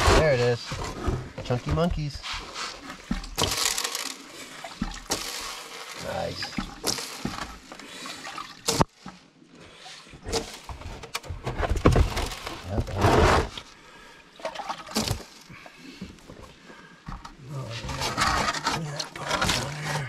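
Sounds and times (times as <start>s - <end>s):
water splashing and trickling: 2.0s - 11.0s, 13.6s - 17.7s.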